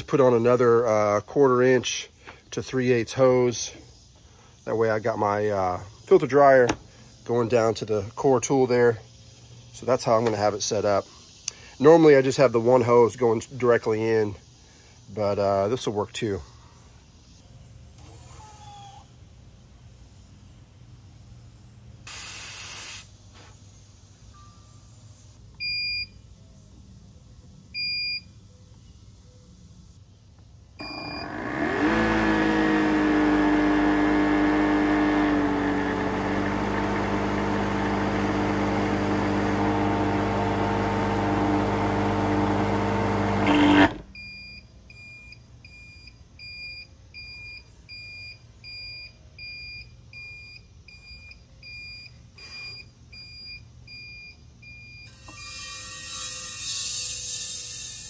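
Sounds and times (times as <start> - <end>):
brief hiss: 22.0 - 23.8
compressor motor running: 30.8 - 44.1.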